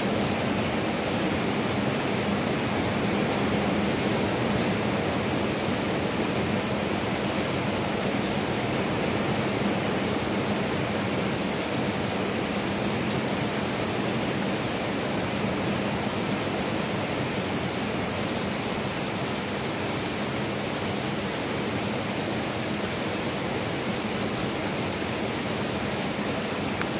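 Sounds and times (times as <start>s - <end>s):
heavy rain hissing: 0.0s - 26.9s.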